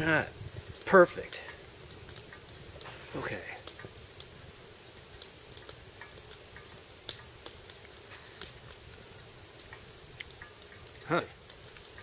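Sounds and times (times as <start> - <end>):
sharp clicks while eating: 0.8 - 2.6.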